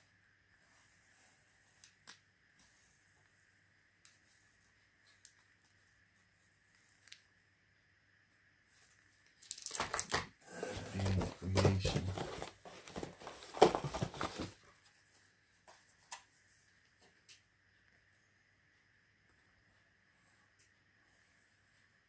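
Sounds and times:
plastic-wrapped boxes crinkling: 0:09.4 - 0:14.7
boxes knocking together: 0:09.8 - 0:14.6.

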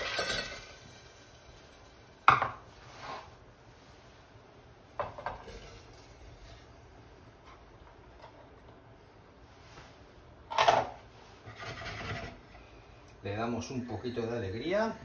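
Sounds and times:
berries clattering into metal saucepan: 0:00.0 - 0:02.7.

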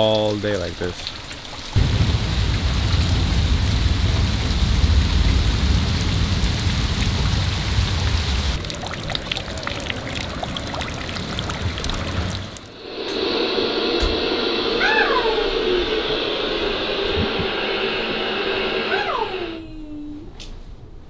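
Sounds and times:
raindrops landing in a puddle: 0:00.0 - 0:12.7
heavy rain: 0:00.0 - 0:13.0
deep rumble: 0:01.8 - 0:08.9, 0:09.5 - 0:20.4.

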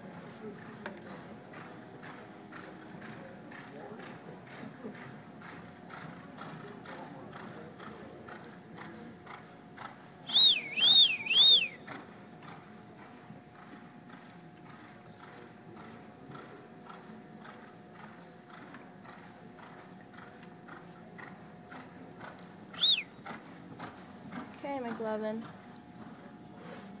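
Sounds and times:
horse hoofbeats on dirt: 0:00.2 - 0:27.0
loud whistles rising and falling: 0:10.3 - 0:11.8, 0:22.8 - 0:23.0.

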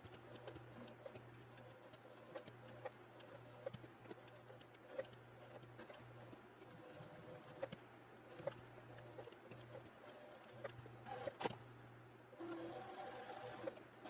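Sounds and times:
sewing machine stitching: 0:12.4 - 0:13.8.

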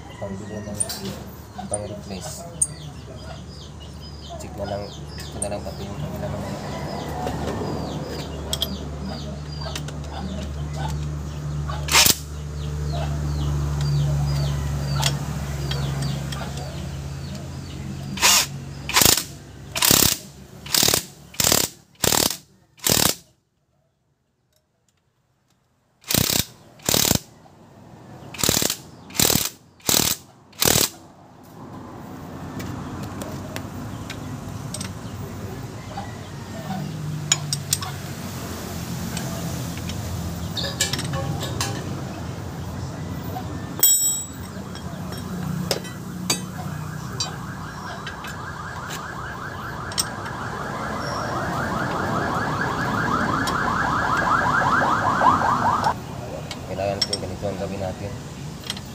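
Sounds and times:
impact wrench bursts: 0:11.8 - 0:12.3, 0:18.1 - 0:23.2, 0:26.0 - 0:27.3, 0:28.3 - 0:31.0.

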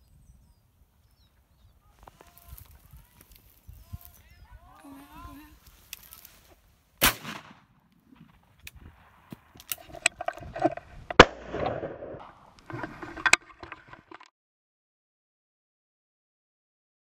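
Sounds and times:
shotgun shots: 0:07.0 - 0:08.4, 0:11.2 - 0:12.3.

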